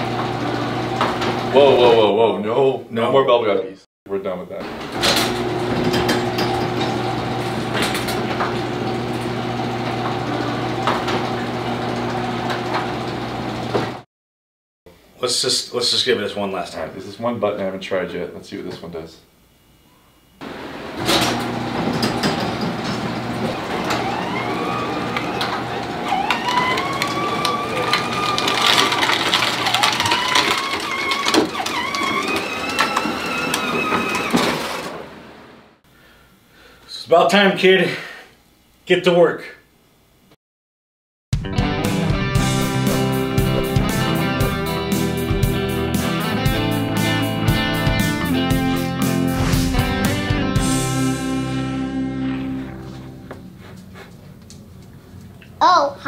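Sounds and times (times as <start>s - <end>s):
garage door motor humming: 0.0s - 2.3s, 4.6s - 14.0s, 20.2s - 35.8s, 41.8s - 54.8s
electric motor whine: 20.4s - 34.9s.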